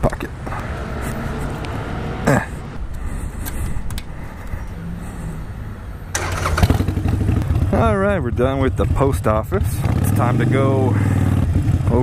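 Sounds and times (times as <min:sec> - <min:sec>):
motorcycle engine idling: 0:06.1 - 0:10.0.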